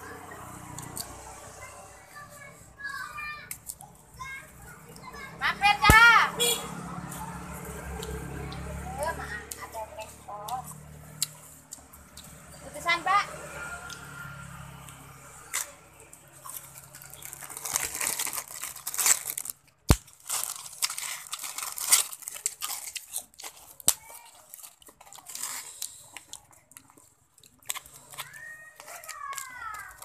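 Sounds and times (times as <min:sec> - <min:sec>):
crackers crunching: 0:13.4 - 0:30.0
plastic bag crinkling: 0:16.5 - 0:30.0.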